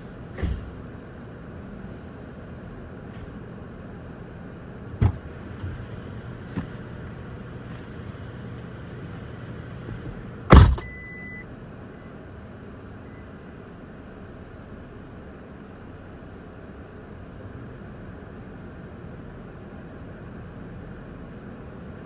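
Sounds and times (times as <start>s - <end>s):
vehicle engine hum: 0.0s - 22.0s
knocks: 5.0s - 5.6s, 9.8s - 10.9s
loud bang: 10.5s - 11.0s.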